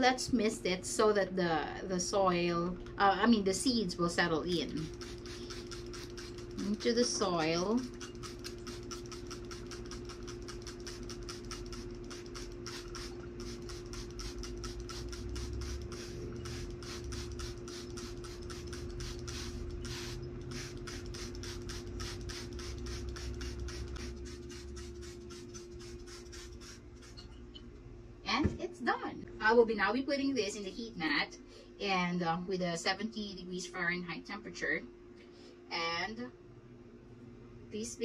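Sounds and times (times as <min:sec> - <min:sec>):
steady hum: 0:00.0 - 0:38.0
spray bottle spritzes: 0:04.6 - 0:27.4.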